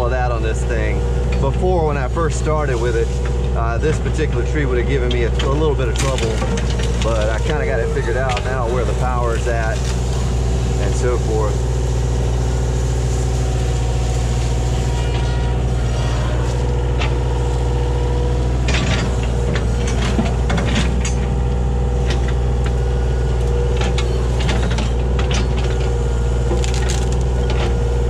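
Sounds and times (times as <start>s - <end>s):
excavator diesel engine running: 0.0s - 28.0s.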